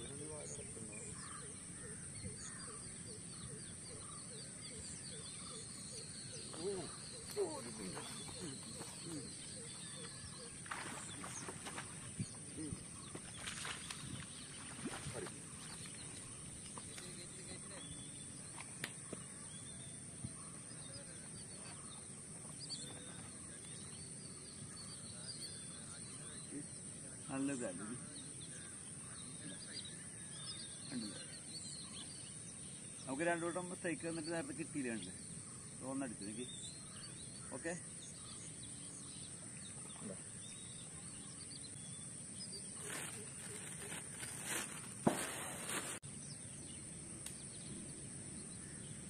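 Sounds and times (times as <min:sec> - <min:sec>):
faint bird chirps: 0:00.0 - 0:49.0
cloth bag rustling: 0:42.8 - 0:46.0.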